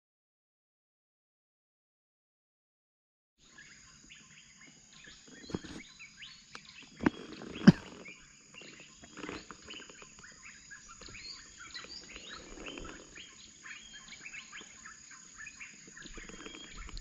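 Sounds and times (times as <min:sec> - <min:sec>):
birds chirping: 0:03.4 - 0:17.0
high insect drone: 0:03.4 - 0:17.0.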